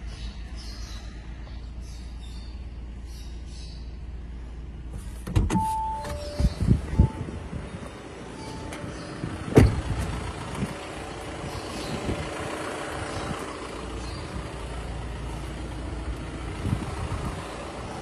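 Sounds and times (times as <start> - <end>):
car engine idling: 3.8 - 18.0
car door shutting: 4.9 - 7.3, 8.4 - 10.2.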